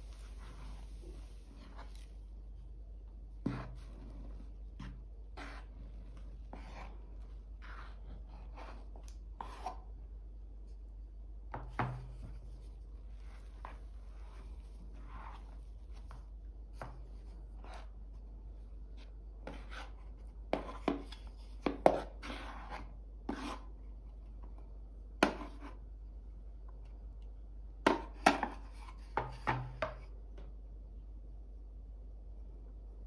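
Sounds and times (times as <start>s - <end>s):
wooden spoon scraping a bowl: 0.0s - 2.2s, 3.4s - 9.9s, 11.6s - 18.0s, 18.9s - 23.8s, 25.2s - 25.8s, 27.9s - 30.1s.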